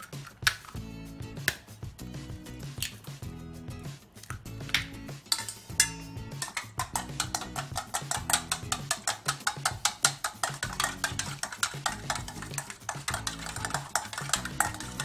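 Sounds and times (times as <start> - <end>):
chopstick beating eggs in metal bowl: 5.3 - 15.0.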